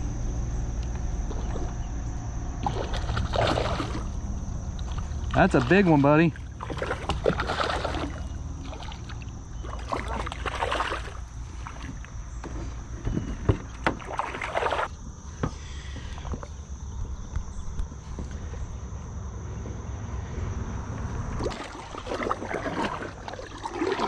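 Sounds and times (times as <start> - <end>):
fish splashing at water surface: 2.6 - 12.0, 13.9 - 14.9, 21.4 - 24.0
sharp knocks on kayak: 12.4 - 14.8.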